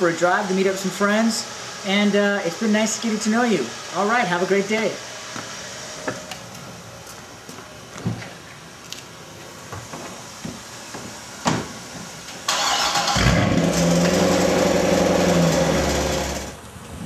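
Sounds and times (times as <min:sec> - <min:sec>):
car engine starting and idling: 0:12.5 - 0:16.6.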